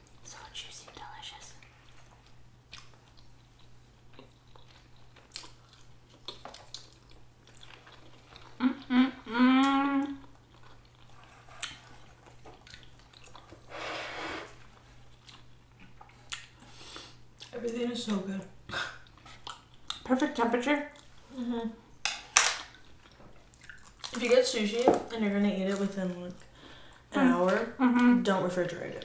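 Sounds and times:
soft wet chewing: 0.0s - 13.6s, 14.8s - 20.1s, 20.9s - 21.2s, 22.7s - 24.9s
person humming mmm: 8.6s - 10.3s.

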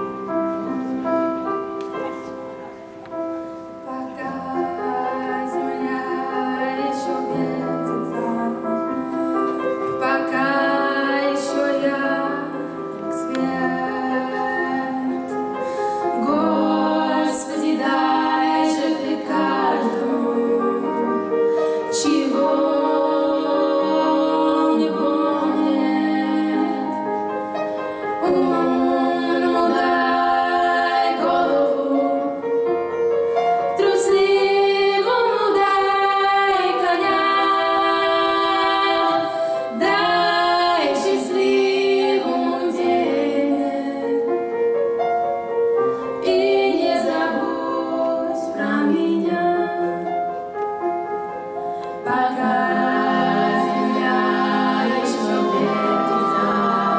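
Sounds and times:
grand piano: 0.0s - 56.9s
woman singing a ballad: 3.8s - 9.0s, 9.9s - 15.3s, 16.1s - 27.2s, 33.8s - 44.1s, 46.2s - 50.1s.

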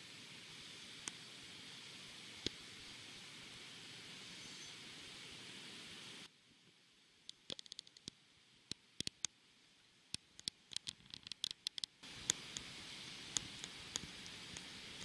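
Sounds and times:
wind and rain hiss: 0.0s - 15.0s
raindrops tapping on microphone: 7.3s - 9.4s, 10.2s - 15.0s.

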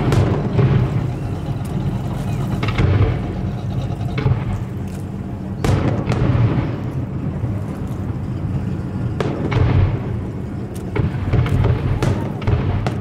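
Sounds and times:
fireworks booming: 0.0s - 1.9s, 2.6s - 4.8s, 5.5s - 7.6s, 9.1s - 13.0s
low rumble: 0.0s - 13.0s.

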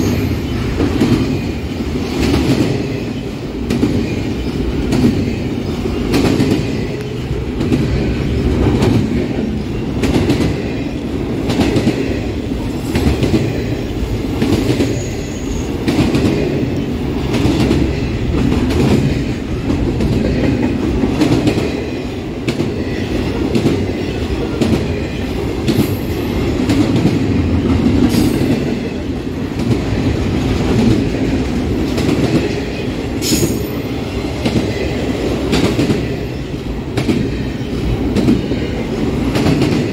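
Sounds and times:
freight train cars rumbling past: 0.0s - 39.9s
high wheel squeals: 14.8s - 15.8s.

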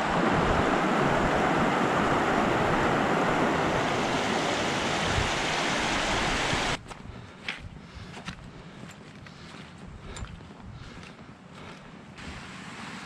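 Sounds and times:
stream rushing over boulders: 0.0s - 6.8s.

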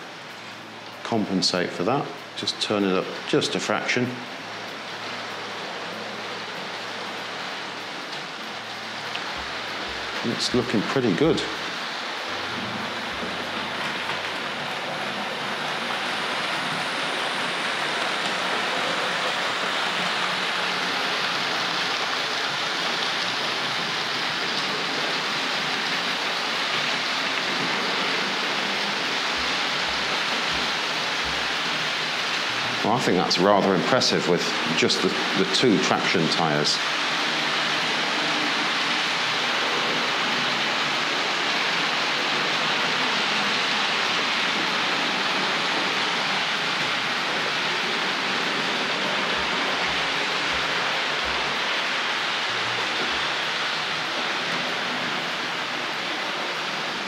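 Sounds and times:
model train wheels rolling on track: 33.2s - 57.0s.

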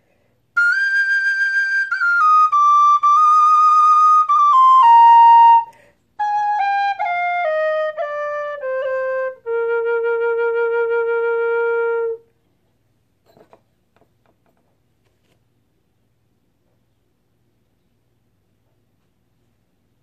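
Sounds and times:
tin whistle playing: 0.6s - 12.3s.

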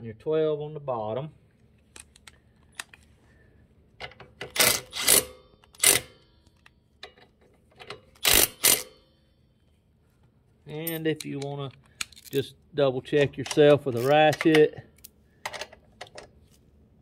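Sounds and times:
impact wrench hammering: 8.2s - 9.0s.

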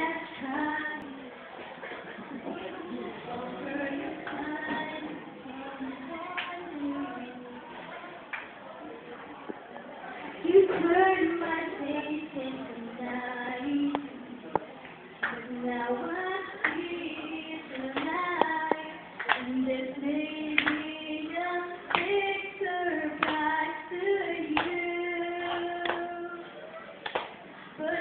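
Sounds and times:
woman singing into microphone: 0.0s - 1.3s, 3.3s - 7.6s, 10.4s - 14.2s, 15.2s - 26.5s, 27.7s - 28.0s
sharp claps: 18.0s - 19.5s, 20.6s - 20.9s, 23.2s - 23.4s, 25.5s - 26.1s, 27.0s - 27.4s.

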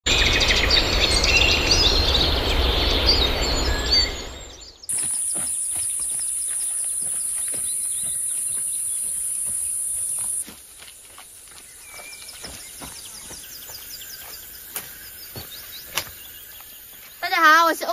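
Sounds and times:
birds chirping: 0.1s - 17.9s
high-pitched insect buzz: 4.9s - 10.4s
soft footsteps: 4.9s - 17.2s.

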